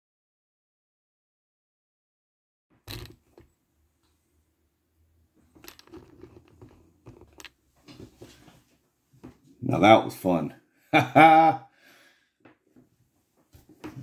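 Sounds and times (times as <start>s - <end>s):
handling clicks and rustling: 5.4s - 9.4s.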